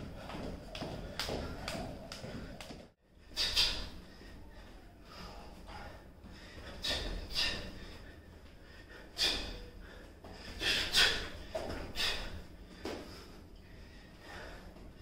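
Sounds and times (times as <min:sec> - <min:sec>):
short sharp exhales: 0:03.3 - 0:04.0, 0:06.6 - 0:07.8, 0:09.2 - 0:09.8, 0:10.5 - 0:13.3.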